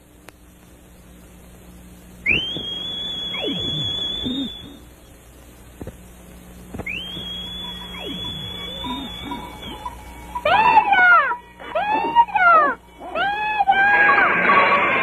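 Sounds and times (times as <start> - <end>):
shrill finger whistle: 2.2 - 4.9, 6.8 - 10.9.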